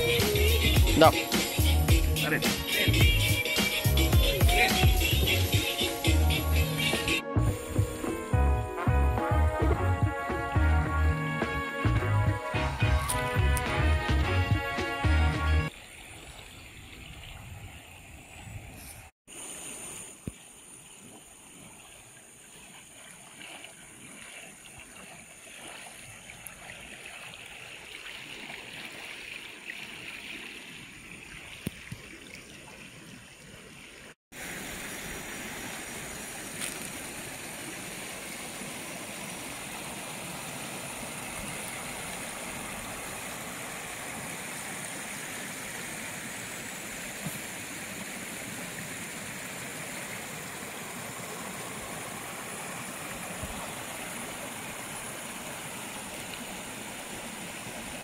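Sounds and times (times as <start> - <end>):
river water rushing over stones: 21.6 - 32.2, 34.4 - 58.0.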